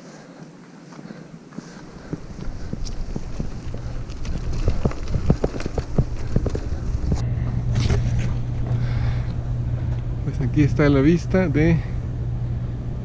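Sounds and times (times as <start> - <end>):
bike tyres crunching on gravel: 0.9 - 10.9
bike chain and frame rattling: 1.9 - 7.2.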